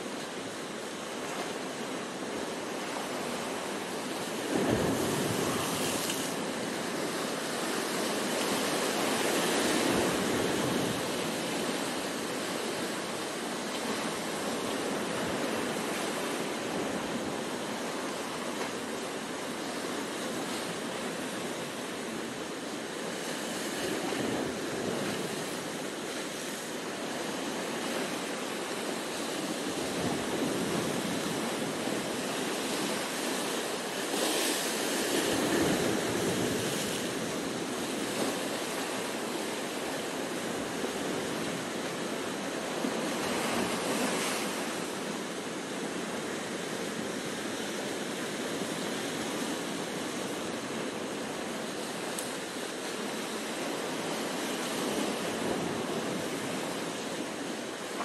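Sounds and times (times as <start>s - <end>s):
surf washing over rocks: 0.0s - 58.0s
waves breaking against rocks: 4.2s - 13.0s.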